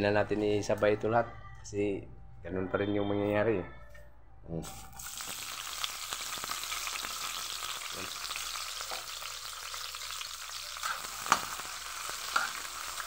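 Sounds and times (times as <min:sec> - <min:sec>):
vegetables sizzling in hot oil: 0:04.6 - 0:13.0.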